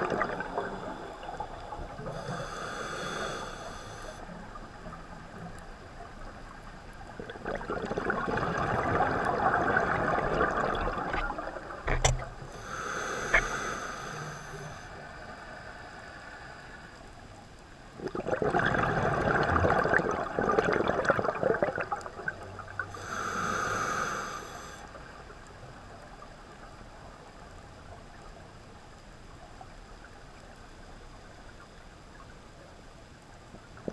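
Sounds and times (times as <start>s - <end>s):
underwater exhalation bubbles: 0.0s - 1.0s, 7.2s - 12.0s, 18.0s - 22.4s
regulator hiss on inhale: 0.5s - 4.6s, 12.4s - 17.3s, 22.9s - 25.2s.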